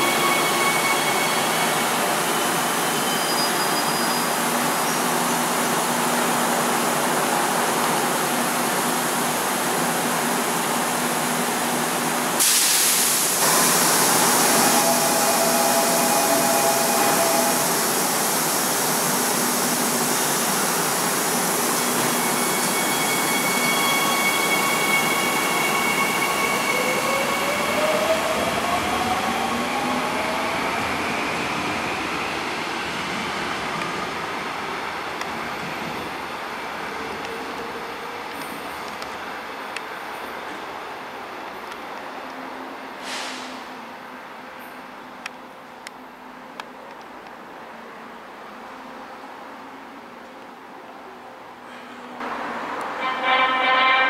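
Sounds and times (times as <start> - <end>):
train air hiss: 12.4 - 26.8, 42.9 - 43.7.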